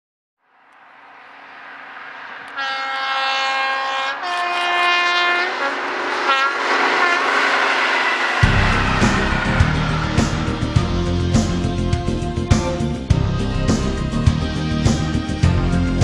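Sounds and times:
train rumbling past: 0:00.6 - 0:16.0
locomotive two-tone horn: 0:02.5 - 0:07.4.

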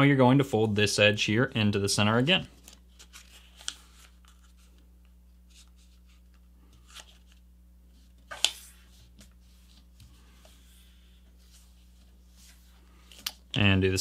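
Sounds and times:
paper rustling: 0:02.5 - 0:04.8.

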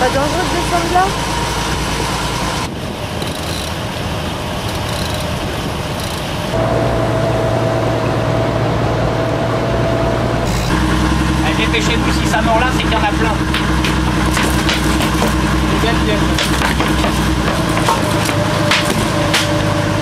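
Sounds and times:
motorboat engine running: 0:00.0 - 0:20.0
wind: 0:00.0 - 0:20.0.

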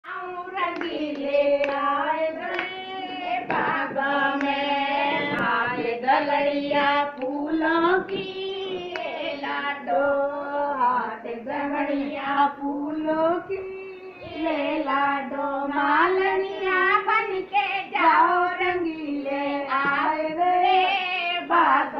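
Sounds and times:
women singing folk song: 0:00.1 - 0:21.9
hand claps: 0:00.7 - 0:02.8, 0:03.4 - 0:05.6.

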